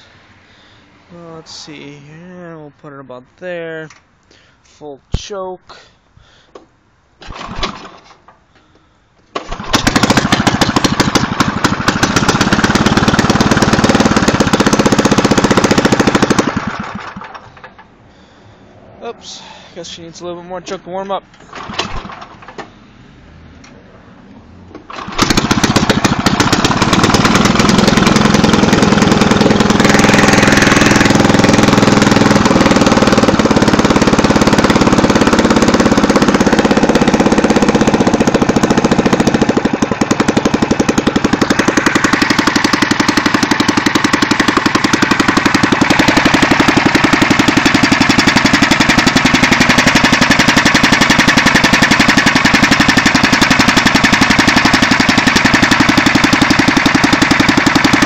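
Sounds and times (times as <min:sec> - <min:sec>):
snowblower engine running loud: 0:09.5 - 0:17.4, 0:24.9 - 0:58.0.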